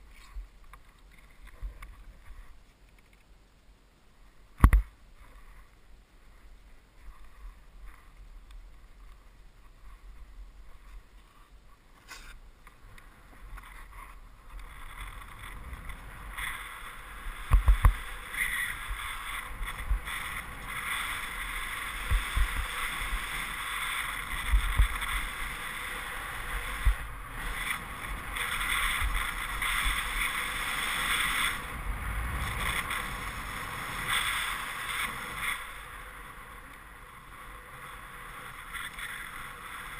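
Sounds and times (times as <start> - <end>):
skis hissing over snow: 13.1 - 39.9.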